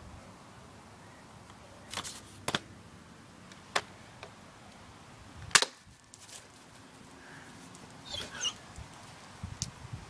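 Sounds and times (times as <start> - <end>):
plastic clicks of a bb gun: 5.5 - 5.8.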